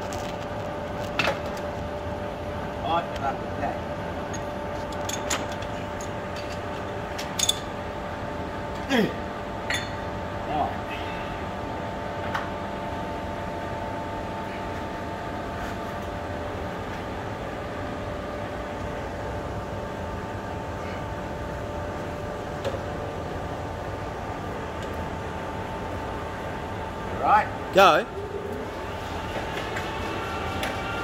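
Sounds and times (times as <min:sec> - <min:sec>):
metal lathe humming and whining: 0:28.1 - 0:31.0.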